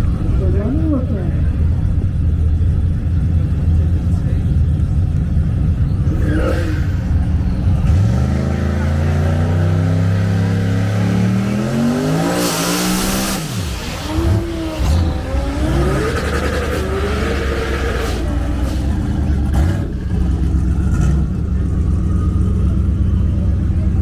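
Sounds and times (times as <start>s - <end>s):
drag car engine revving: 0.0s - 24.0s.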